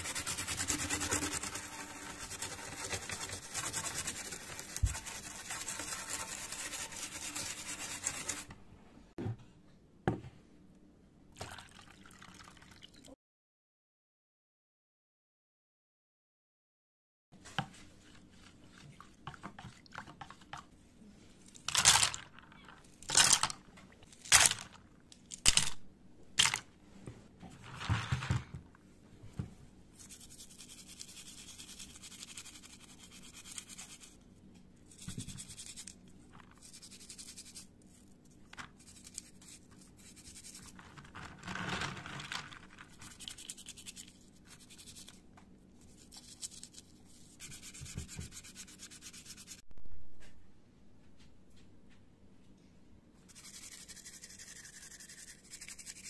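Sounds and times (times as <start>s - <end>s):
toothbrush scrubbing keycaps in water: 0.0s - 8.5s, 42.7s - 45.2s, 45.8s - 47.8s, 53.3s - 56.0s.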